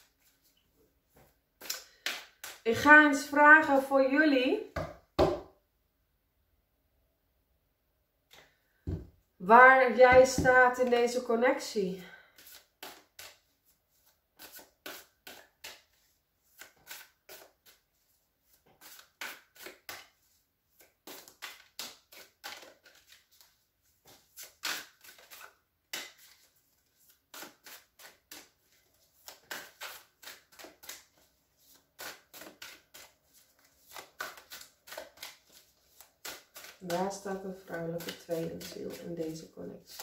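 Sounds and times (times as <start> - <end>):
cards being shuffled: 1.2 - 2.6, 12.3 - 17.8, 18.5 - 40.0.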